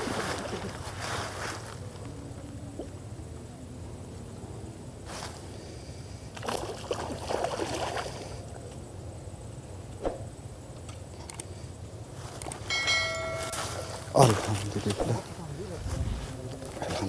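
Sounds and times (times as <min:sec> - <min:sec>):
fish splashing water: 0:06.4 - 0:08.4
steady low rumble: 0:11.7 - 0:17.0.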